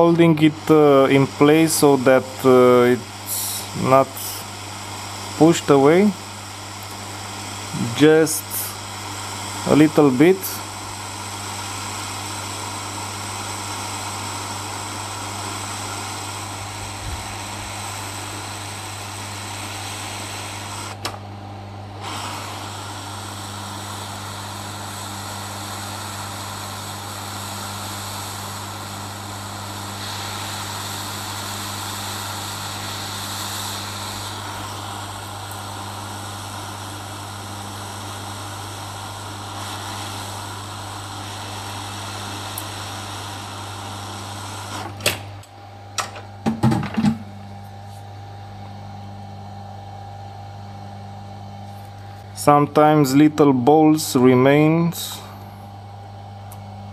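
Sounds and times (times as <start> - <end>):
hot air hissing: 0.0 - 45.4, 51.7 - 56.9.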